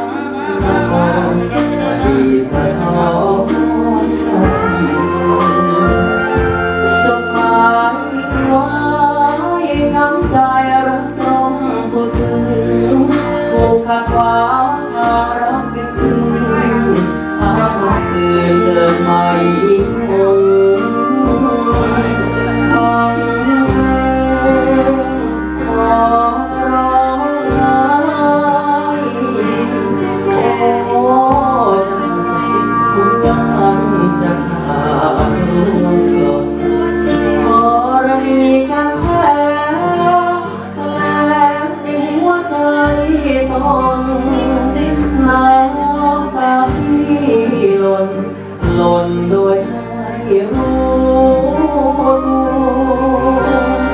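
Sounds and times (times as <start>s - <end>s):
backing music with steady beat: 0.0s - 53.9s
man singing into microphone: 0.0s - 53.9s.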